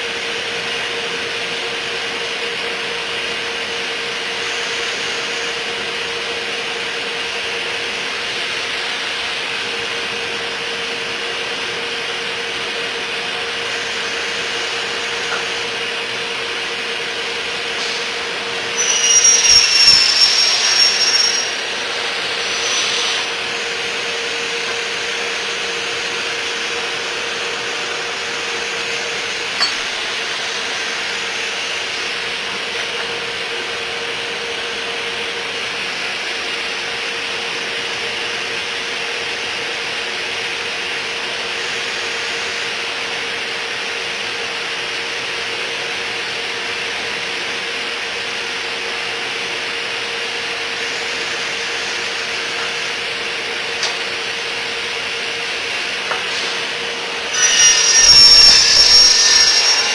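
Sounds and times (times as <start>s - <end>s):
machine motors whirring: 57.3s - 59.9s.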